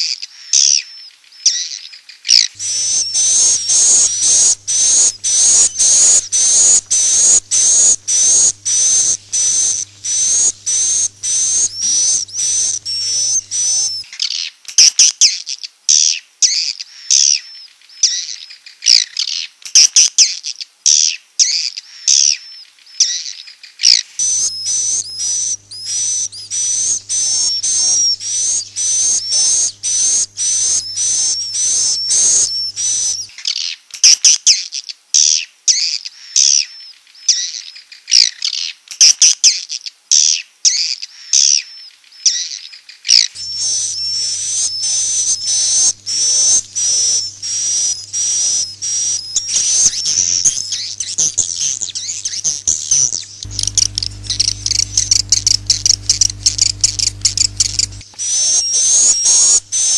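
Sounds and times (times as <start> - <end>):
swiftlets chirping: 2.6 - 14.0, 24.2 - 33.3, 43.4 - 59.9.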